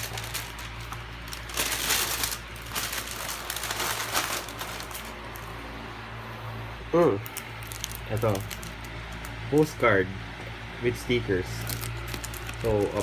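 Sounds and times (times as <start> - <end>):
plastic packaging crinkling: 0.0 - 5.7, 7.2 - 9.7, 11.4 - 13.0.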